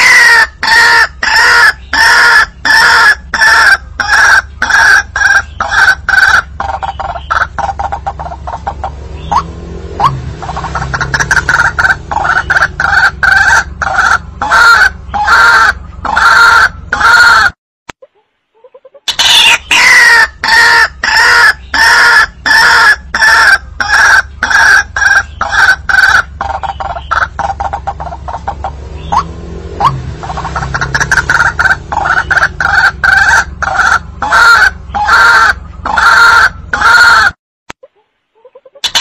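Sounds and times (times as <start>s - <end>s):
waterhen croaking call: 0.0s - 17.6s, 18.6s - 39.0s.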